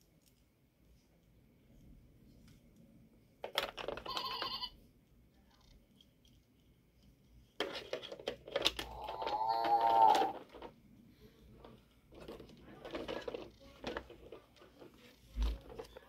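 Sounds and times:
plastic toys clicking: 3.4 - 4.6, 7.6 - 10.8, 11.6 - 16.0
electronic toy beeping tones: 4.0 - 4.8
electronic animal-like call: 8.9 - 10.4.

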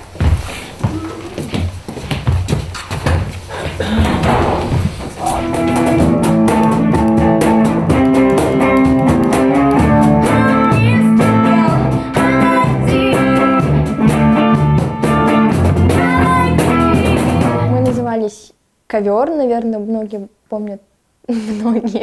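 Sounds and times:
steady beat: 3.8 - 18.1
bass: 4.2 - 18.2
guitar: 4.2 - 18.2
person singing: 5.2 - 14.1, 15.0 - 18.0.

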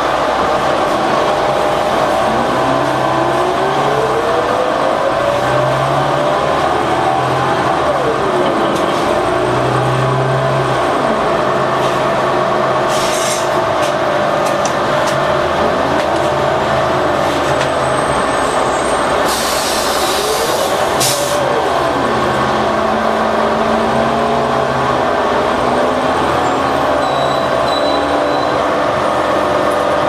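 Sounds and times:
bus diesel engine whining: 0.0 - 30.0
air brake hiss: 12.9 - 13.5, 19.2 - 21.4.

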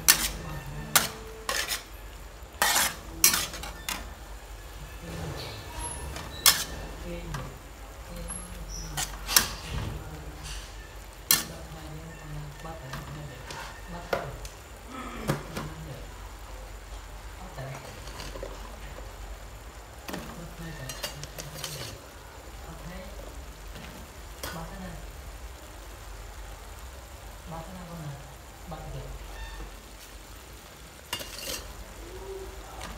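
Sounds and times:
spatula scraping and clanking on wok: 0.0 - 11.8, 12.5 - 14.3, 17.7 - 19.0, 20.1 - 22.2, 31.0 - 31.9
beef sizzling in a wok: 0.0 - 32.9.

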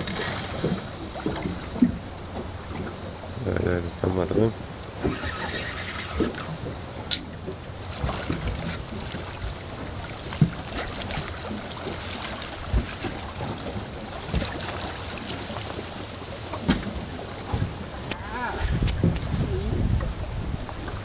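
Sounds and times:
water lapping against boat: 0.0 - 21.0
wind on microphone: 16.8 - 21.0.

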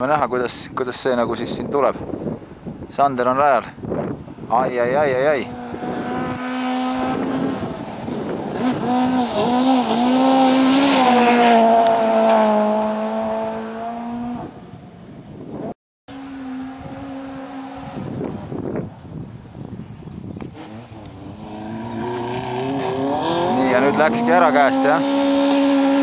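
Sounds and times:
distant car engine: 5.3 - 14.6, 16.1 - 19.0, 20.4 - 26.0
rally car engine revving past: 5.4 - 14.6, 20.5 - 26.0.

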